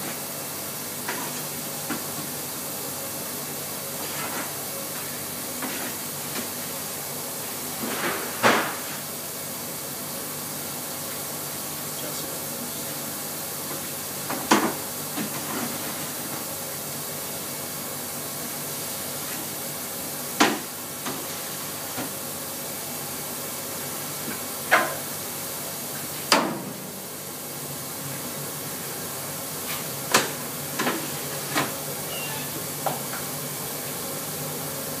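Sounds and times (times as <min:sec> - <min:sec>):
oven rushing hiss: 0:00.0 - 0:35.0.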